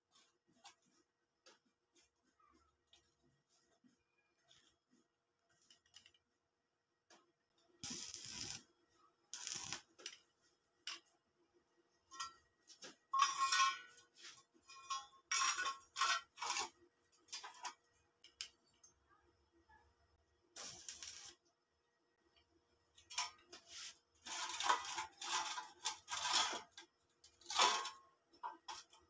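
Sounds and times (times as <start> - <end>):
arc welder bursts: 7.8 - 8.6, 9.4 - 9.9, 20.6 - 21.4.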